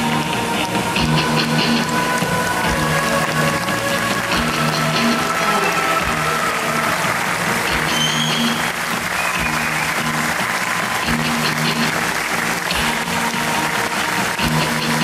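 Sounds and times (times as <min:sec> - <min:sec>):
audience applause: 0:00.0 - 0:15.0
show music with pulsing bass: 0:00.0 - 0:15.0.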